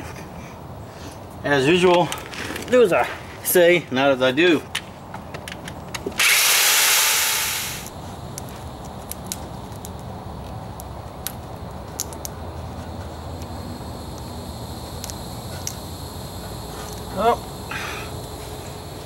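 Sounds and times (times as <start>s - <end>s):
cordless drill grinding: 6.2s - 7.9s.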